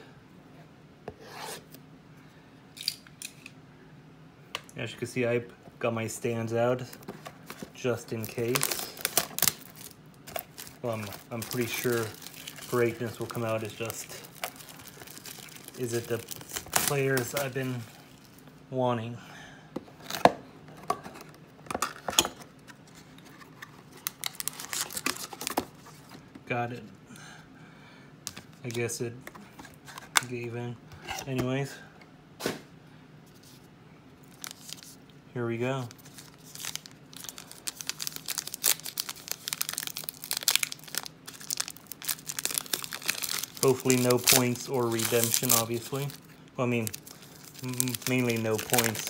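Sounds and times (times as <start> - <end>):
wrapper crinkling and crackling: 7.0 - 18.4, 23.2 - 26.0, 34.2 - 35.0, 35.8 - 49.0.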